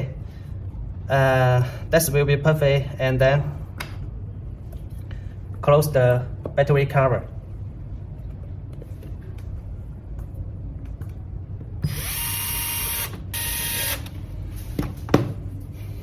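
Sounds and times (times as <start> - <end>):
electric screwdriver spinning: 11.8 - 14.1.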